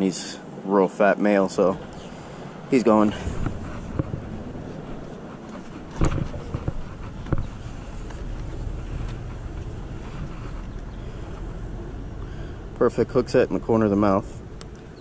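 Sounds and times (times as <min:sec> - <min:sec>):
low outdoor rumble: 0:00.0 - 0:15.0
wind on the microphone: 0:01.8 - 0:12.8.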